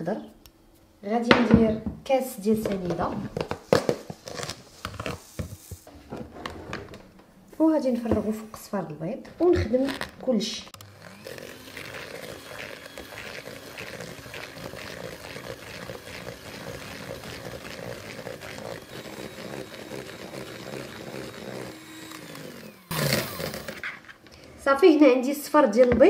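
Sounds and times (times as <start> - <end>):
electric hand mixer whisking: 9.5 - 24.1.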